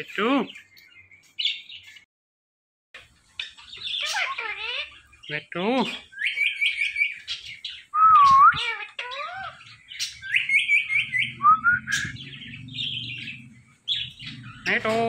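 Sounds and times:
parakeets chirping: 0.0 - 2.0, 3.0 - 15.0
parakeet gliding whistles: 7.9 - 9.2, 10.0 - 13.4.

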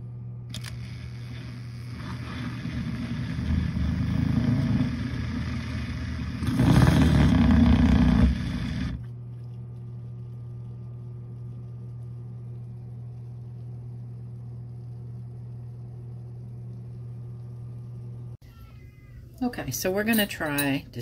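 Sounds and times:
steady low hum: 0.0 - 21.0
electric milk frother whisking: 0.5 - 9.2.

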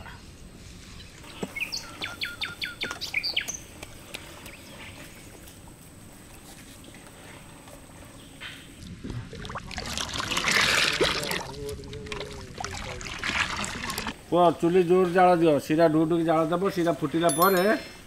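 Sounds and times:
outdoor background noise: 0.0 - 18.0
bird chirping: 1.0 - 3.7.

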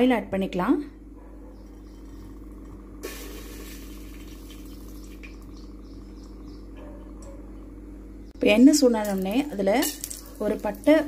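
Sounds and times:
steady low hum: 0.0 - 11.0
oil trickling into a pot: 3.0 - 5.5.

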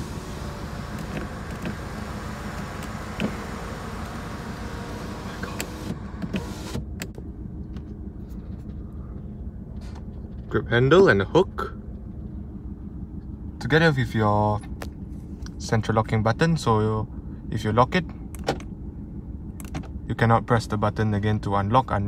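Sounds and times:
car window motor whirring: 0.0 - 7.1.

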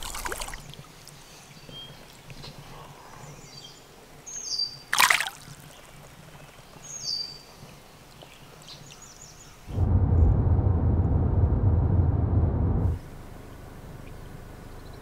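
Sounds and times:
loud splash in stream: 0.0 - 0.7, 4.9 - 5.6
stream water running: 0.0 - 2.7, 3.8 - 9.7.

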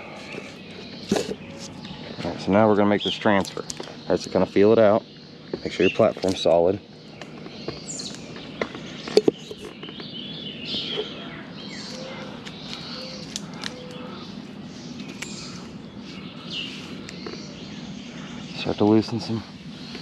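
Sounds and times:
birds chirping: 0.0 - 20.0
steady outdoor hiss: 0.0 - 20.0.

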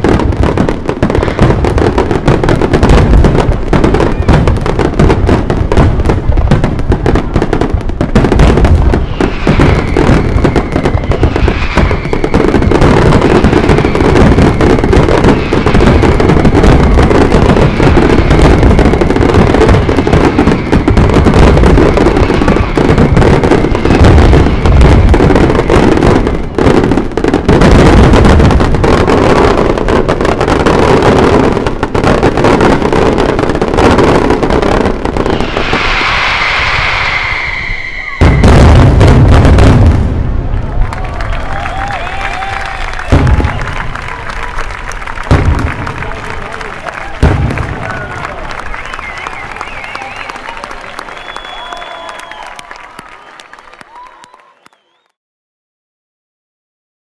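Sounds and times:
fireworks bangs and crackling: 0.0 - 55.0
whistle falling in pitch: 35.6 - 38.5, 48.7 - 55.2.

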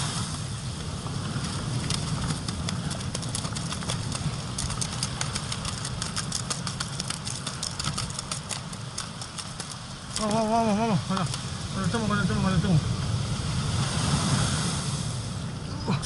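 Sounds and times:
surf breaking on pebble beach: 0.0 - 15.6
pebbles clicking and rattling: 1.8 - 10.5.

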